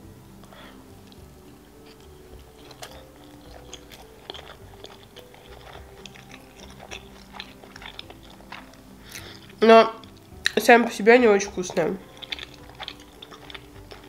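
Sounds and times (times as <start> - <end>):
chewing with mouth closed: 1.9 - 10.6, 11.3 - 14.0.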